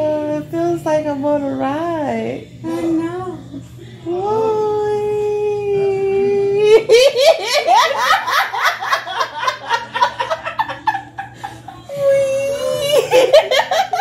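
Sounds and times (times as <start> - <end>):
women laughing: 6.6 - 14.0.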